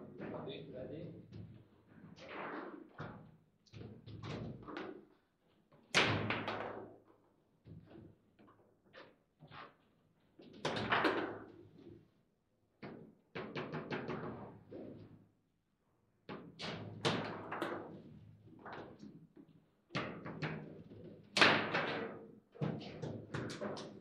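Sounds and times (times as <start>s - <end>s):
table football knocks and clacks: 2.9s - 5.2s, 5.8s - 7.0s, 10.4s - 11.9s, 12.8s - 15.1s, 16.3s - 24.0s.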